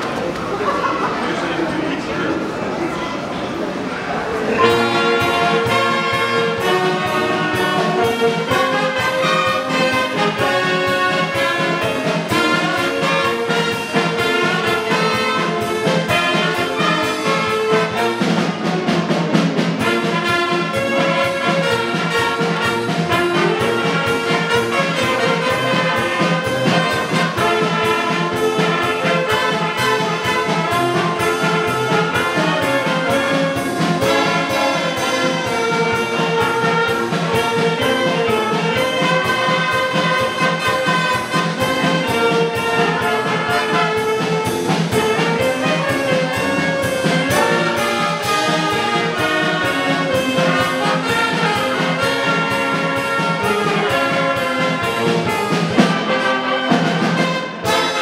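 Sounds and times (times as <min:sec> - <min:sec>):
brass band playing: 0:00.0 - 0:58.0
steady beat: 0:04.6 - 0:58.0.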